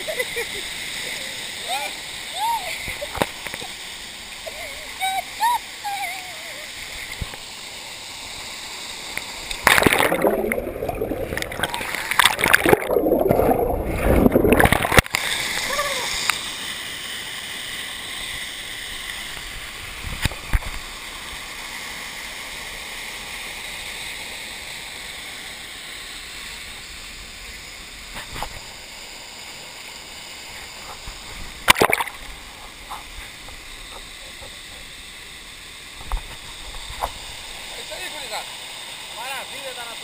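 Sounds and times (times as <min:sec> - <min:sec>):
waterfall rushing: 0:08.8 - 0:20.0
knocks and splashes: 0:09.5 - 0:15.2, 0:31.6 - 0:32.3.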